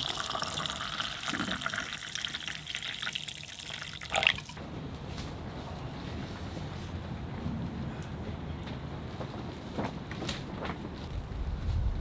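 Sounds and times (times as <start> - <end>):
low rumble: 11.1 - 12.0.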